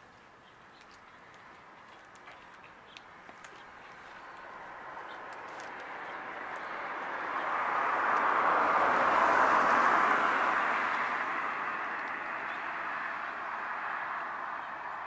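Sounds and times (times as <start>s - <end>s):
vehicle passing by: 3.8s - 15.0s.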